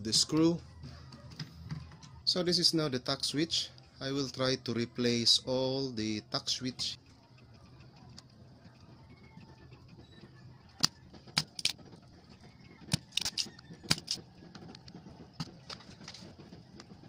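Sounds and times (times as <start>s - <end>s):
hand tools clicking on circuit board: 10.8s - 11.8s, 12.9s - 14.2s.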